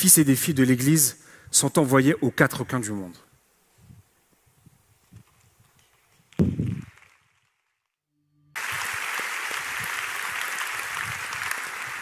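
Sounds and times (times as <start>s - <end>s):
crowd applause: 8.6s - 12.0s.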